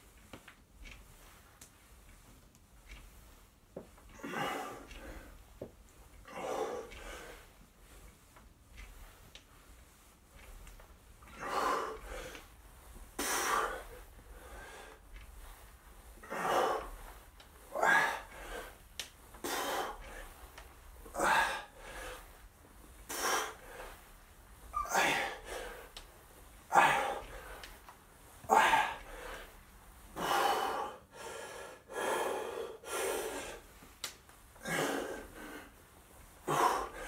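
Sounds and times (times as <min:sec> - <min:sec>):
man breathing hard: 0:04.1 - 0:05.5, 0:06.2 - 0:08.0, 0:11.3 - 0:12.6, 0:13.2 - 0:26.0, 0:26.7 - 0:27.8, 0:28.4 - 0:33.8, 0:34.5 - 0:35.8, 0:36.4 - 0:37.0.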